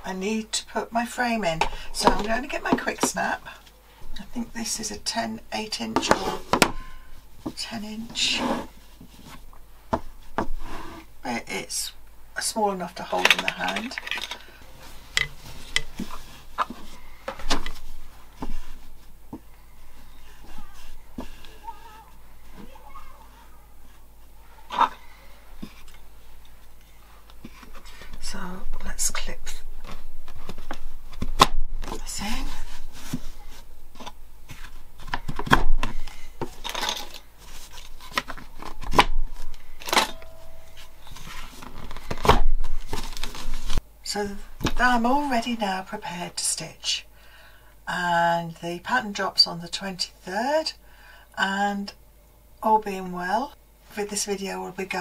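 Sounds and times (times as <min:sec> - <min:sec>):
fabric rustling: 0:29.6 - 0:35.1, 0:35.8 - 0:43.8.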